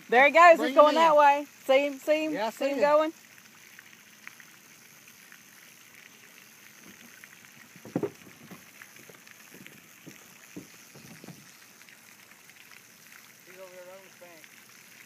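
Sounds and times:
water sloshing: 0:05.8 - 0:13.5
light knocks on canoe: 0:07.8 - 0:11.4.

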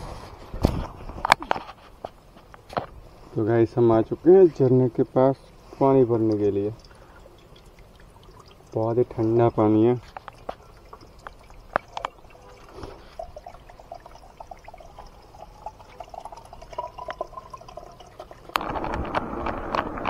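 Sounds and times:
water gurgling into a bottle: 0:04.9 - 0:20.0.

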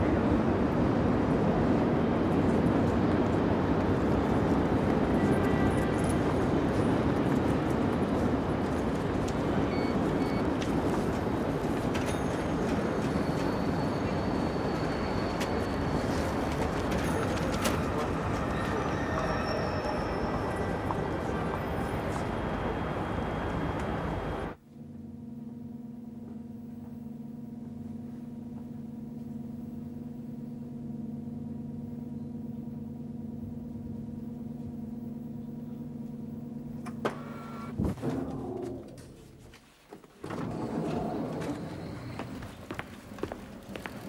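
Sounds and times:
lift electric hum: 0:17.4 - 0:39.6
footsteps: 0:38.6 - 0:44.0.

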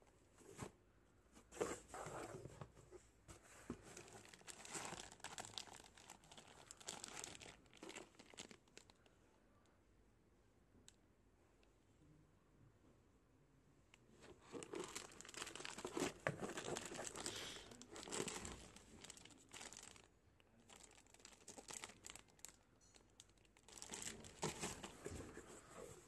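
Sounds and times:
plastic pouches crinkling: 0:03.8 - 0:09.1, 0:14.3 - 0:25.2.

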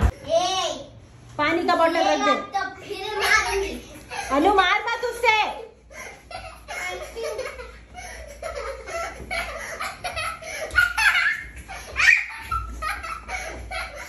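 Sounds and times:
girls laughing and giggling: 0:02.9 - 0:04.6, 0:05.6 - 0:14.0.

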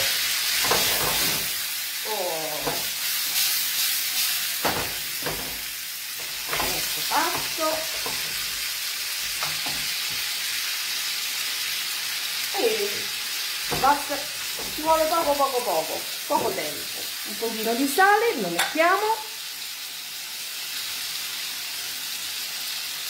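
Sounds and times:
tomatoes sizzling in a skillet: 0:00.0 - 0:23.0
wooden spoon scraping a pan: 0:00.6 - 0:01.6, 0:02.6 - 0:10.3.

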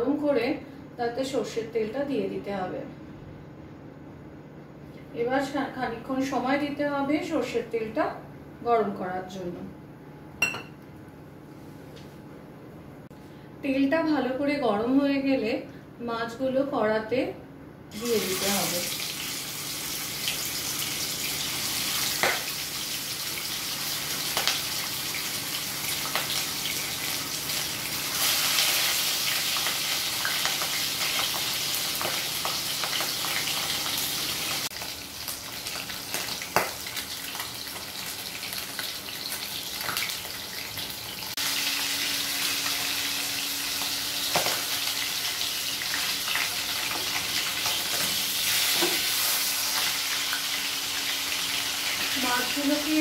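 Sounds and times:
fish frying in oil: 0:18.0 - 0:53.0.

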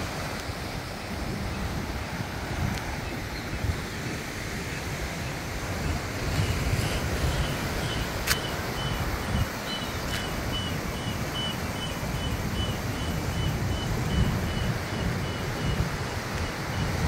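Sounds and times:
wind rumbling on microphone: 0:00.0 - 0:17.0
faint high chirp: 0:07.3 - 0:15.8.

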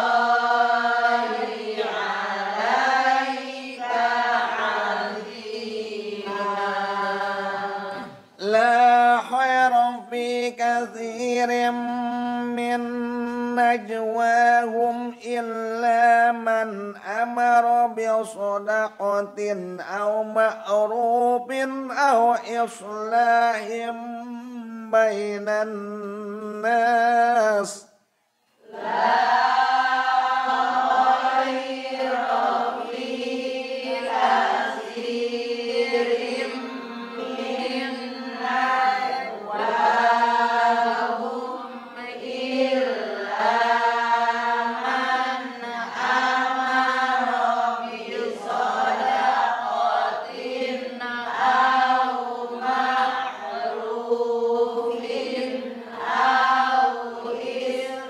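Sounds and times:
man chanting slowly: 0:07.9 - 0:27.9.

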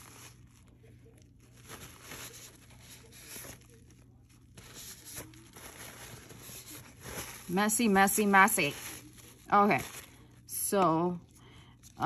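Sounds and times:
paper towel rustling: 0:00.0 - 0:11.2.

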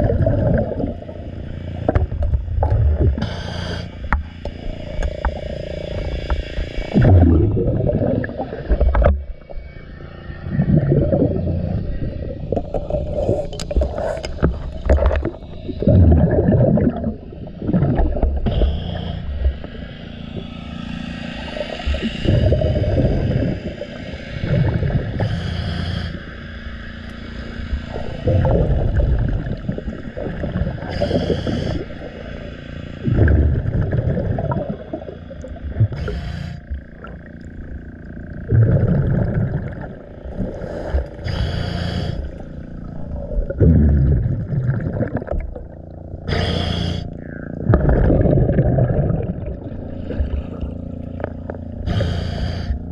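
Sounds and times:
exhaled bubbles rumbling: 0:00.0 - 0:52.9
regulator inhale hiss: 0:03.2 - 0:04.2, 0:18.4 - 0:19.8, 0:25.1 - 0:26.8, 0:30.8 - 0:32.4, 0:35.9 - 0:36.8, 0:40.4 - 0:43.3, 0:46.3 - 0:47.2, 0:51.8 - 0:52.9.

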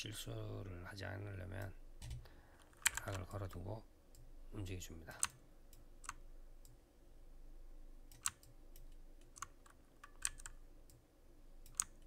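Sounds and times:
faint electrical hum: 0:00.0 - 0:12.0
computer mouse clicks: 0:01.6 - 0:04.3, 0:05.2 - 0:06.8, 0:08.1 - 0:11.0, 0:11.6 - 0:12.0.

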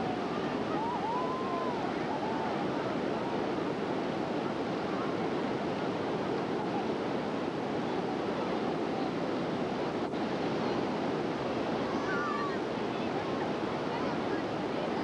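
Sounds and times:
ocean surf washing onto beach: 0:00.0 - 0:15.0.

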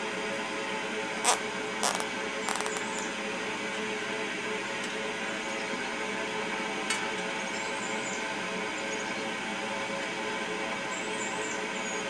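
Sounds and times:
zip tie ratcheting clicks: 0:01.3 - 0:03.0.

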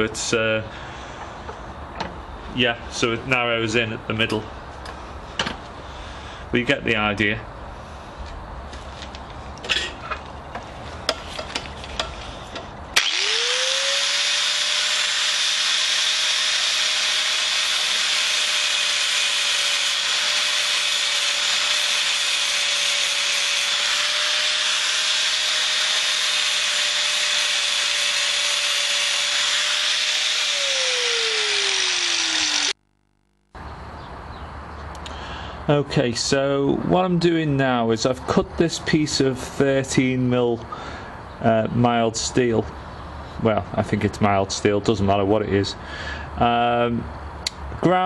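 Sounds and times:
angle grinder whine: 0:13.0 - 0:33.6.

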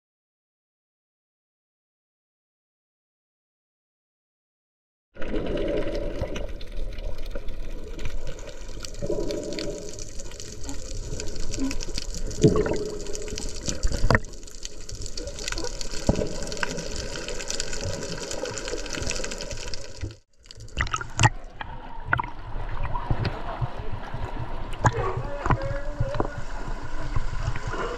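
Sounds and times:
muffled underwater rush: 0:05.2 - 0:27.9
water splashing at surface: 0:05.2 - 0:27.9
underwater knocks and clicks: 0:05.4 - 0:26.5.

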